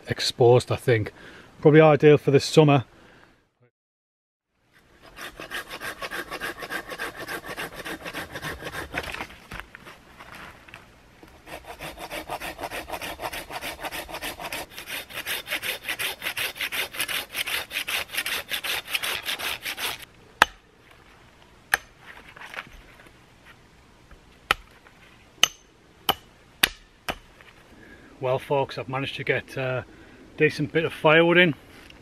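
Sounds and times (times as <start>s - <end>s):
hand saw cutting wood: 5.0s - 9.2s, 11.4s - 20.1s.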